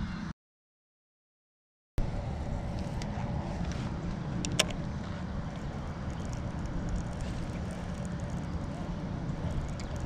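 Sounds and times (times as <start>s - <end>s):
wind rumbling on microphone: 2.0s - 10.0s
sharp click: 4.4s - 4.8s.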